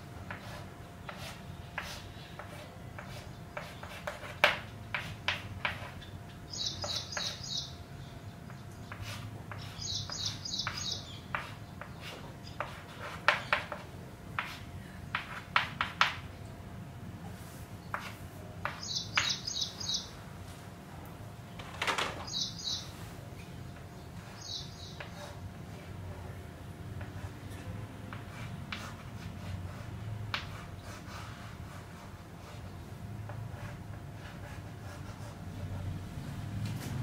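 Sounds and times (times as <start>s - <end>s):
chalk scraping on blackboard: 0.3s - 7.6s, 8.9s - 16.2s, 17.4s - 20.0s, 24.2s - 25.9s, 27.0s - 35.9s
small bird chirping: 5.8s - 12.6s, 18.7s - 20.1s, 22.2s - 25.1s.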